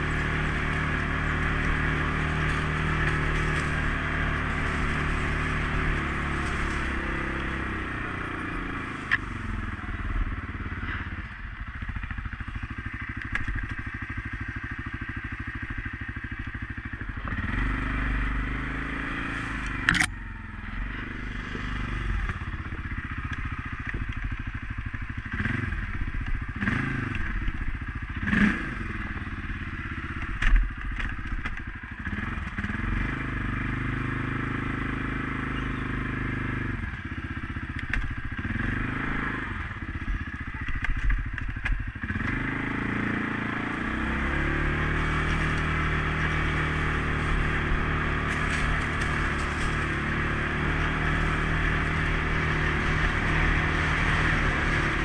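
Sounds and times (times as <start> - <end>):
atv engine revving: 0.0 - 55.0
vehicle clattering over rough ground: 0.0 - 55.0.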